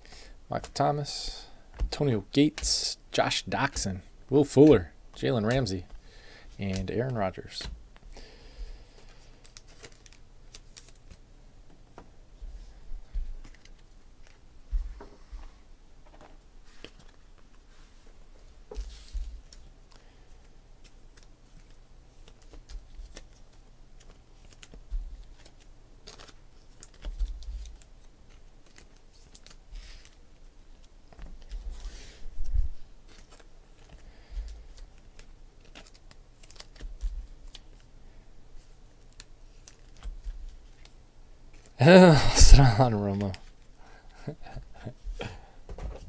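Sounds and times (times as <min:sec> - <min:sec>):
trading cards clicking and rustling: 0:00.6 - 0:00.8, 0:03.6 - 0:08.2, 0:08.9 - 0:11.2, 0:13.2 - 0:14.4, 0:18.7 - 0:30.2, 0:33.0 - 0:37.9.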